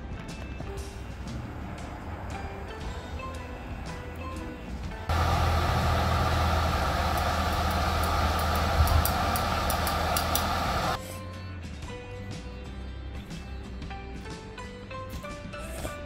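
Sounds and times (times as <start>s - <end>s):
quiet background music: 0.0s - 16.0s
gas stove burning: 0.9s - 11.0s.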